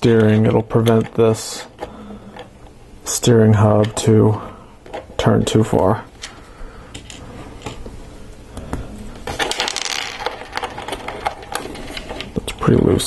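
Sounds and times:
plastic parts clicking and rattling: 0:09.2 - 0:12.7.

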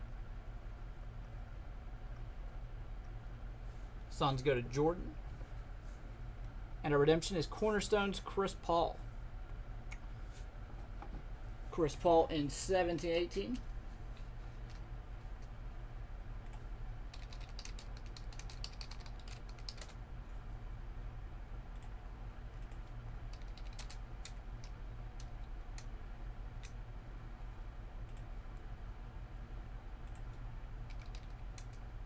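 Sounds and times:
steady low hum: 0:00.0 - 0:32.0
keyboard typing: 0:16.5 - 0:20.0, 0:22.6 - 0:25.9, 0:30.9 - 0:31.8.

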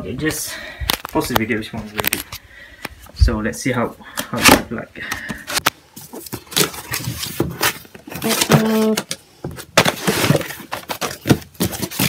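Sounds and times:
cardboard box rustling and scraping: 0:06.0 - 0:12.0.

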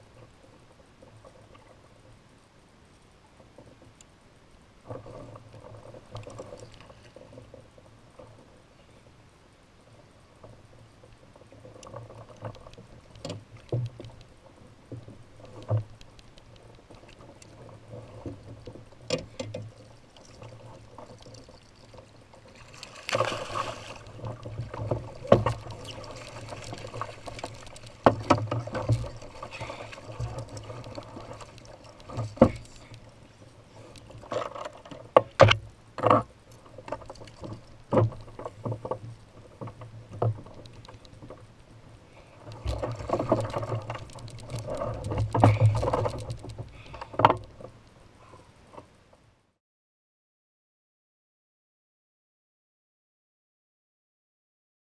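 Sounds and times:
fish thrashing in water: 0:22.5 - 0:32.8
knocks and bumps on kayak: 0:23.0 - 0:30.7, 0:44.6 - 0:47.5.

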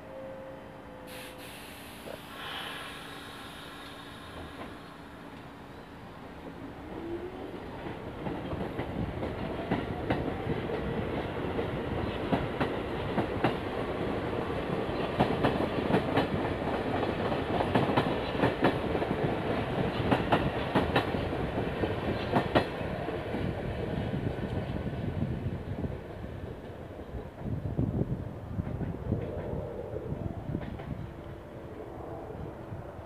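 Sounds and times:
train wheels clacking over rail joints: 0:14.7 - 0:22.8.

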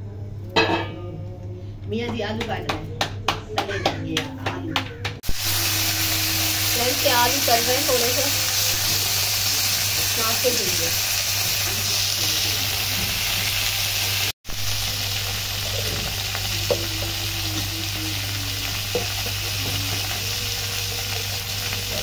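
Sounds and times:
potatoes sizzling on a griddle: 0:05.2 - 0:22.0.

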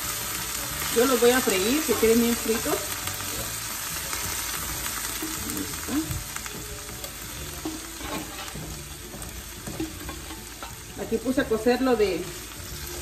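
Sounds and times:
beans sizzling in a skillet: 0:00.0 - 0:13.0
spoon scraping a pan: 0:01.4 - 0:03.0, 0:07.0 - 0:10.9.

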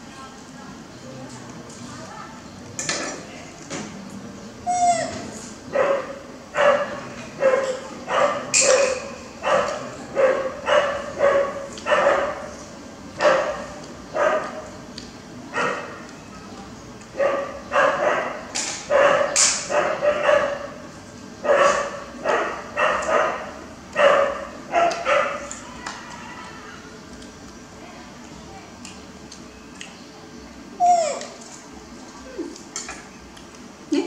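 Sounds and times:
baby monkey calling: 0:04.6 - 0:05.4, 0:30.8 - 0:31.4
baby monkey squeak: 0:04.7 - 0:05.2, 0:30.8 - 0:31.3.

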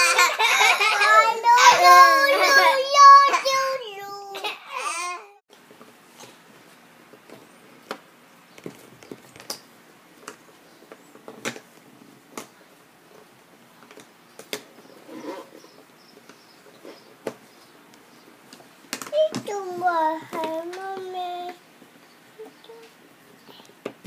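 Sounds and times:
child's voice murmuring: 0:00.9 - 0:05.4, 0:22.4 - 0:22.9.

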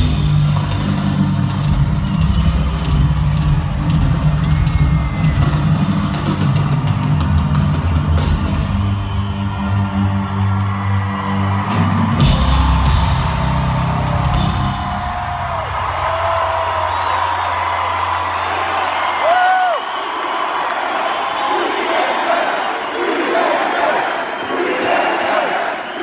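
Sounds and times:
rock band playing live: 0:00.0 - 0:09.7, 0:11.4 - 0:17.0
crowd cheering: 0:00.0 - 0:26.0.

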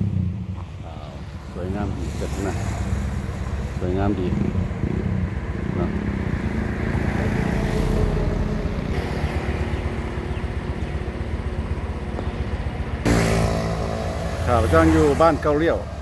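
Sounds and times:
motorcycle engine drone: 0:00.0 - 0:16.0
wind and road noise: 0:00.0 - 0:16.0
loud pitched sound: 0:13.0 - 0:15.2.

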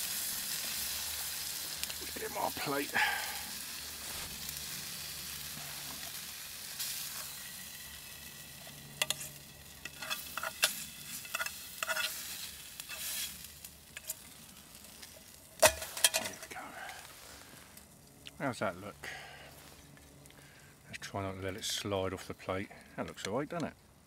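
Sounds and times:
steak sizzling in a frying pan: 0:00.0 - 0:16.4.

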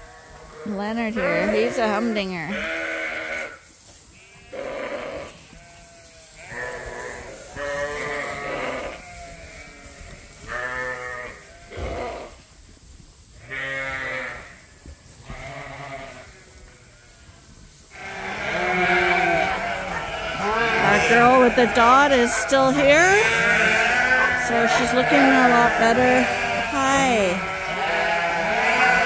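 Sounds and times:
sheep bleating: 0:00.1 - 0:03.6, 0:04.2 - 0:12.3, 0:15.3 - 0:17.3, 0:17.9 - 0:29.0.

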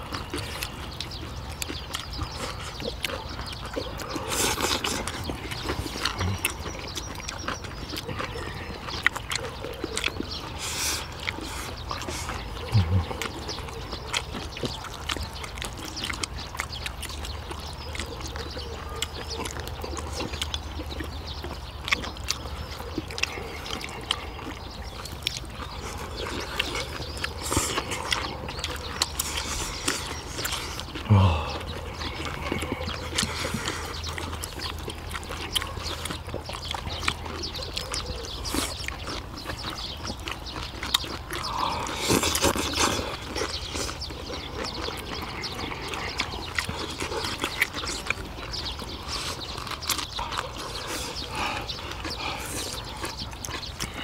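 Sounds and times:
chewing and smacking: 0:00.0 - 0:54.0.

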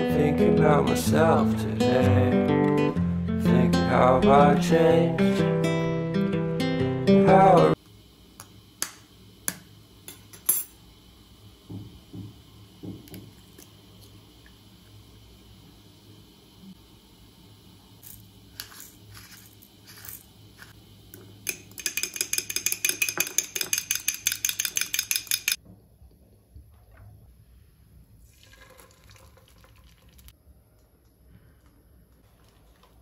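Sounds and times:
fork beating egg in bowl: 0:21.5 - 0:25.6.

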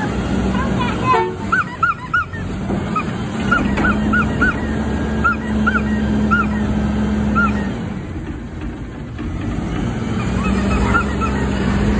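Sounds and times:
garbage truck engine and hydraulics hum: 0:00.0 - 0:11.9
short high squeaks: 0:01.4 - 0:07.8, 0:10.2 - 0:11.9.

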